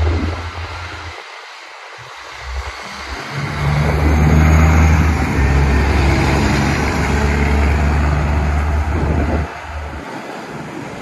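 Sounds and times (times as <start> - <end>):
diesel truck driving past: 2.2 - 10.0.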